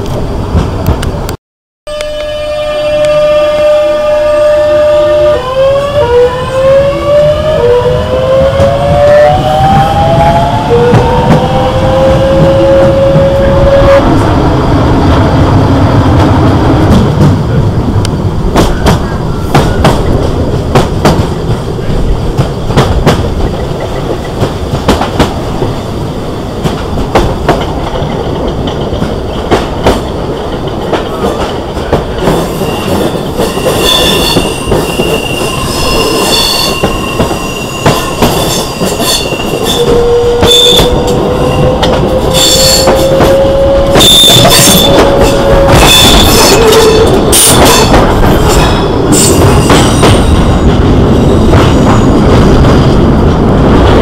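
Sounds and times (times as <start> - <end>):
train rumble: 0.0 - 54.0
train wheels clicking over rail joints: 16.1 - 54.0.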